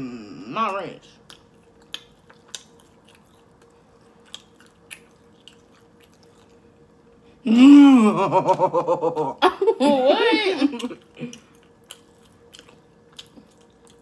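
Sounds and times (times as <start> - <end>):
people chewing: 1.2 - 7.4, 10.7 - 14.0.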